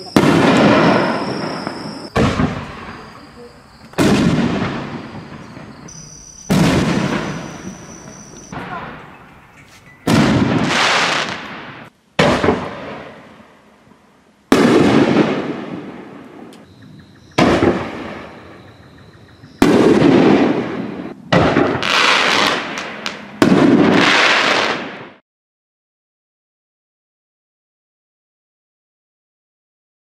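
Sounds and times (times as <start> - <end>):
sharp firework cracks: 0.0 - 3.1, 3.9 - 8.6, 10.1 - 13.3, 14.5 - 16.1, 17.4 - 18.4, 19.6 - 25.2
firework shell booms with echo: 0.0 - 3.2, 3.9 - 9.1, 10.0 - 13.3, 14.5 - 16.5, 17.3 - 18.6, 19.5 - 25.2.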